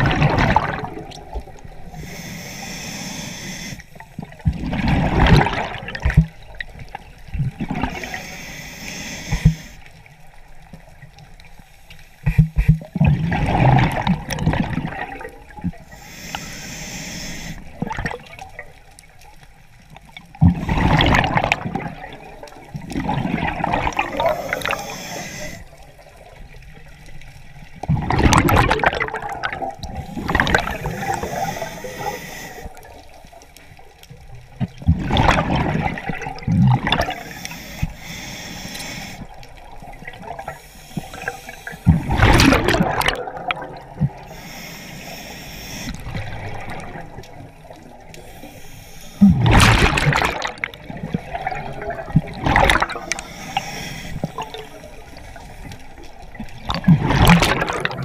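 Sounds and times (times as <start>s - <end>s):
regulator inhale hiss: 1.7s - 4.2s, 7.8s - 10.0s, 11.5s - 12.8s, 15.8s - 17.8s, 24.0s - 25.9s, 29.9s - 33.1s, 37.0s - 39.5s, 40.4s - 42.2s, 44.2s - 46.3s, 48.0s - 49.4s, 52.9s - 56.2s
exhaust bubbles rushing: 41.9s - 44.1s.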